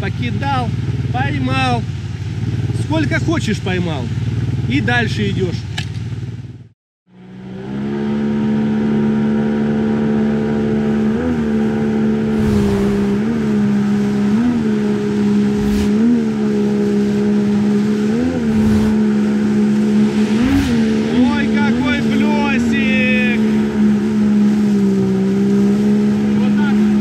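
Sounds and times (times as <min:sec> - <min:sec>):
outboard motor at high revs: 0:00.0 - 0:27.0
rushing white water: 0:12.1 - 0:27.0.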